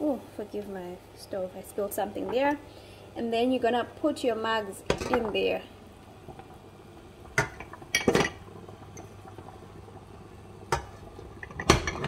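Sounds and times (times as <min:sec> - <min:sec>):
ceramic mugs knocking in a saucepan: 0:07.4 - 0:08.4, 0:10.7 - 0:12.0.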